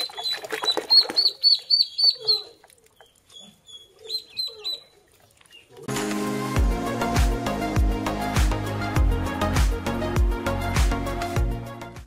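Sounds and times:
ducklings peeping: 0.1s - 5.7s.

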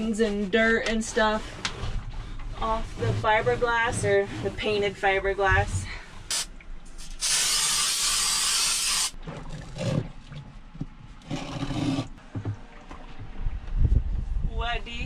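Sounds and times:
aerosol can spray hissing: 6.3s - 9.2s.

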